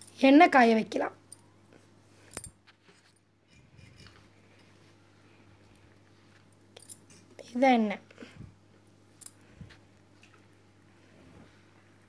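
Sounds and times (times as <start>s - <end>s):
steady low hum: 0.0s - 12.0s
soft rustle: 1.7s - 6.5s.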